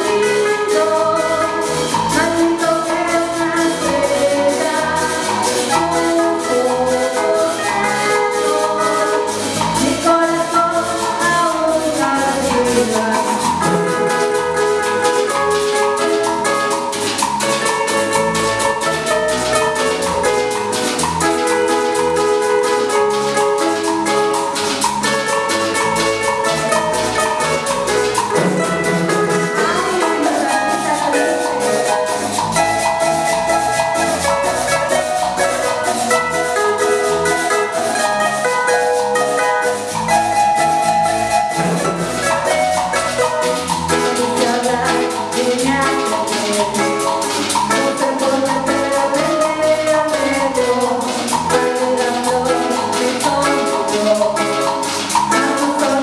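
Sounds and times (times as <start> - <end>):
merengue band playing live: 0.0 - 56.0
metal guira scraping: 0.0 - 56.0.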